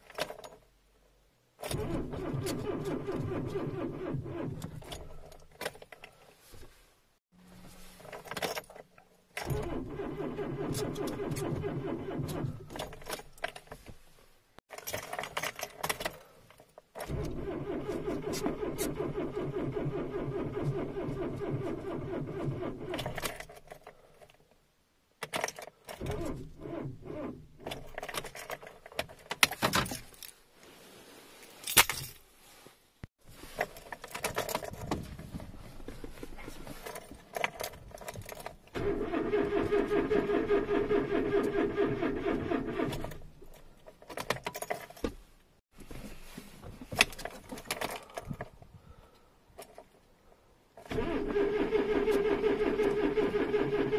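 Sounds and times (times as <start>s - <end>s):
car starter cranking: 1.6s - 5.3s, 9.4s - 13.2s, 17.0s - 23.5s, 37.4s - 43.4s, 50.8s - 53.9s.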